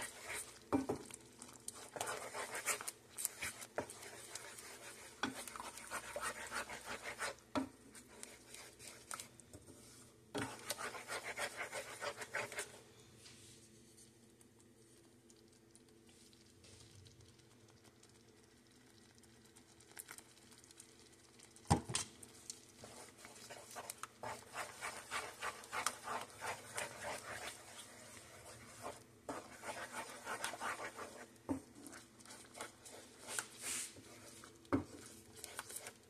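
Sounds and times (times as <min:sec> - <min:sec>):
spatula stirring thick gravy: 0:00.0 - 0:12.9, 0:22.2 - 0:36.0
faint steady hum: 0:00.0 - 0:36.0.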